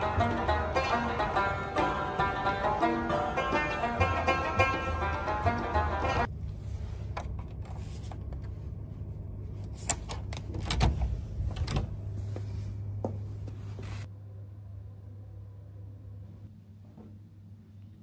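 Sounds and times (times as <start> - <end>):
background music: 0.0 - 6.3
low steady hum: 0.0 - 18.0.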